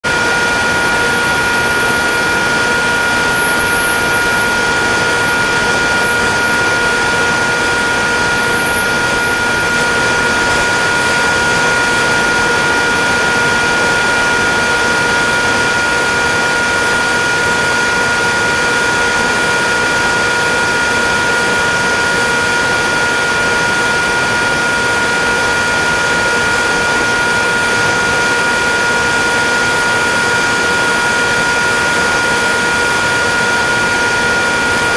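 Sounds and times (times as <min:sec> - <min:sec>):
electric motor droning whine: 0:00.0 - 0:34.9
thin high-pitched whine: 0:00.0 - 0:34.9.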